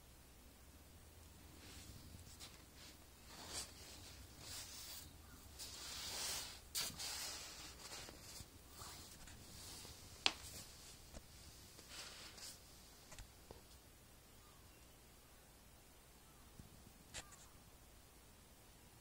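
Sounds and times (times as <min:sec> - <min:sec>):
cushion rustling: 0:01.4 - 0:13.2.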